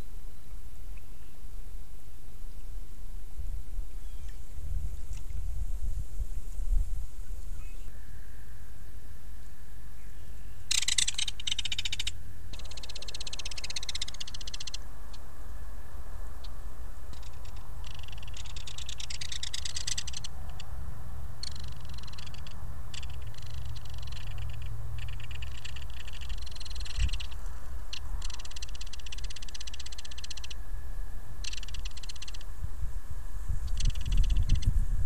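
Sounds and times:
frogs calling in pulsed trills: 9.9 - 34.8
low rumble: 11.8 - 28.9.

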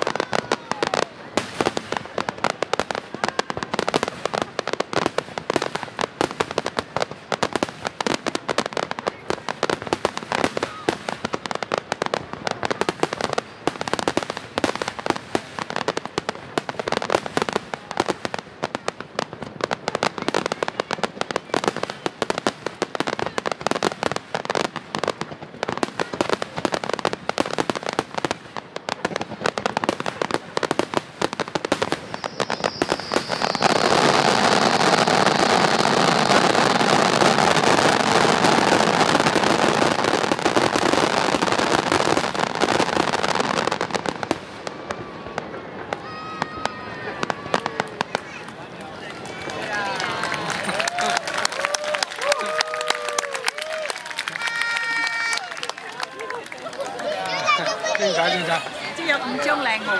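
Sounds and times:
fireworks bangs and crackles: 0.0 - 59.9.

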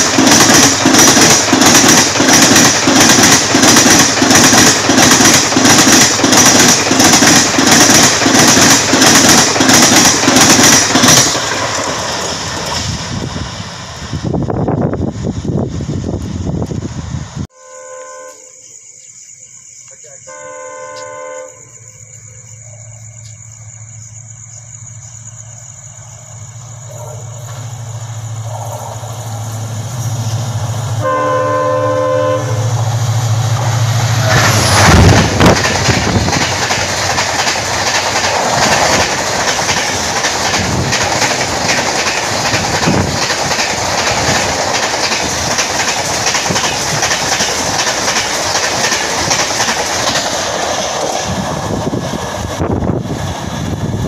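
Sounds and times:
wheels clacking over rail joints: 0.0 - 12.9, 34.0 - 52.6
train coaches rushing by: 0.0 - 17.5, 20.0 - 54.0
train horn: 17.5 - 18.6, 20.3 - 21.8, 30.9 - 33.4
locomotive hum: 20.0 - 54.0.

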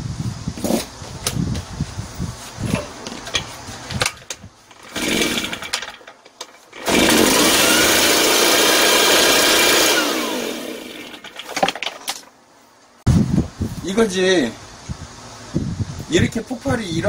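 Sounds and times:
starter cord pull: 4.0 - 8.1
blower engine running: 4.7 - 6.1, 6.7 - 11.4.

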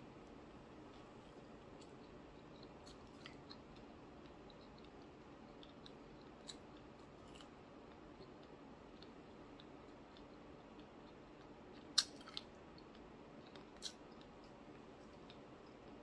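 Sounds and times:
faint chewing: 0.3 - 16.0.

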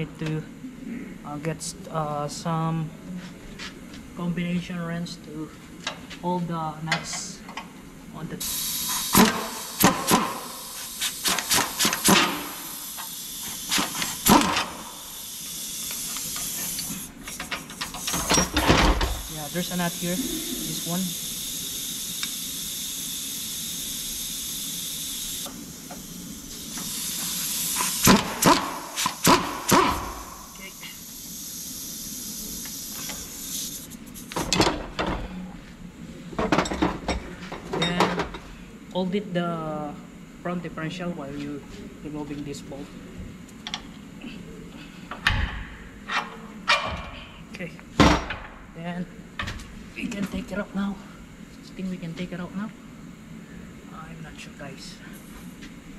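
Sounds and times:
hiss: 8.4 - 34.5
impact wrench buzzing: 8.4 - 35.2.

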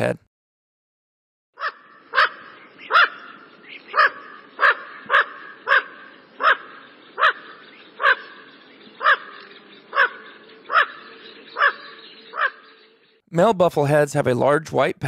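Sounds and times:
duck calling: 1.6 - 12.7.

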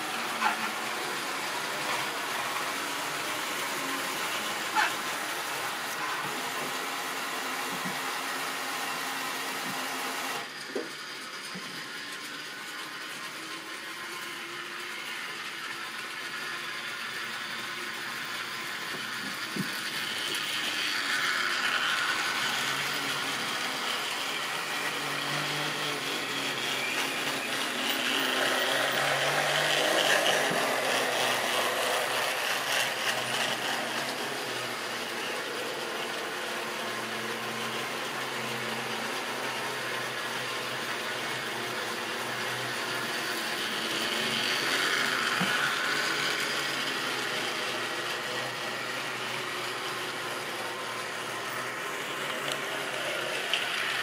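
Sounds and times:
small electric motor whirring: 0.0 - 54.0.

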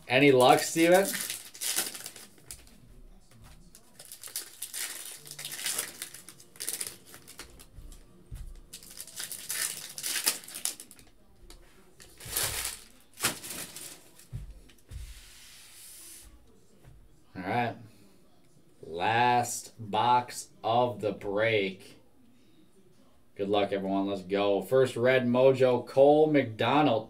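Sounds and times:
foil wrappers crinkling and tearing: 0.2 - 2.7, 3.7 - 7.7, 8.6 - 11.1, 12.0 - 14.3.

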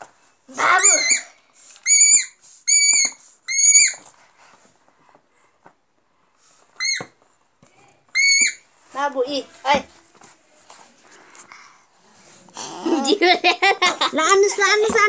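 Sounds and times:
squeeze toy squeaking: 0.7 - 4.0, 6.8 - 7.1, 8.1 - 8.6.

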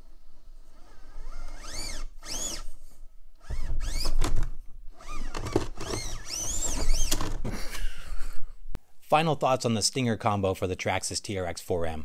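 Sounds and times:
electric motor whining: 0.8 - 2.7, 5.0 - 7.2.

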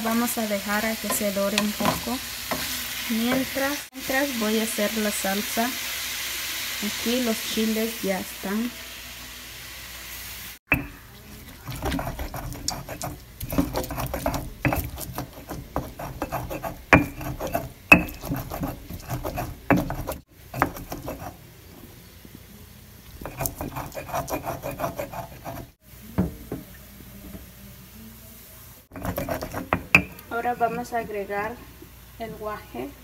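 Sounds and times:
stone pestle grinding on stone: 10.7 - 21.4, 23.2 - 25.8, 28.9 - 30.9.

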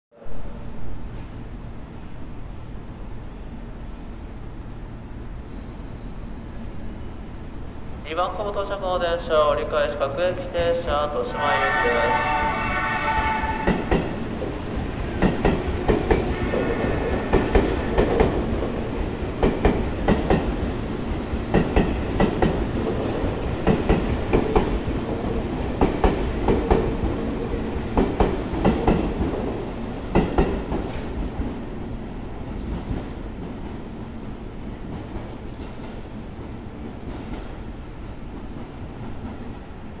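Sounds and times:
train running rumble: 8.5 - 31.6
train wheels clacking over rail joint: 15.2 - 16.3.

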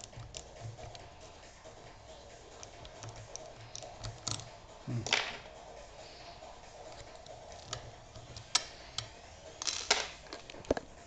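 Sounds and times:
lock pick clicking and tapping: 0.0 - 1.0, 2.6 - 4.5.

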